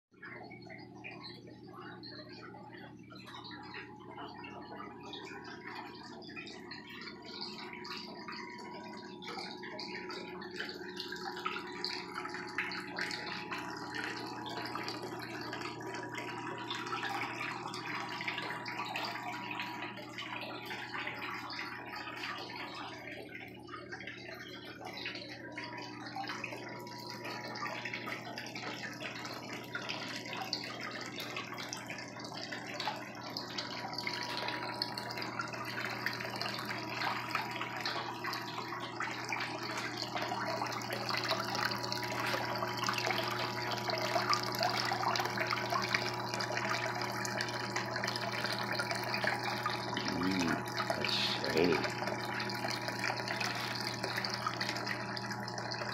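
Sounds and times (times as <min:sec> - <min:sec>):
pump humming: 0:00.2 - 0:55.9
water splashing into bucket: 0:05.1 - 0:55.9.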